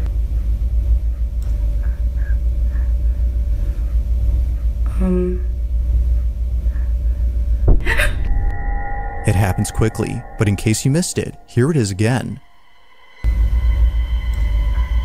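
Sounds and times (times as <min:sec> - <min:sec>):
faint hum: 0:00.0 - 0:15.0
low rumble: 0:07.4 - 0:15.0
short pitched sound: 0:07.7 - 0:13.2.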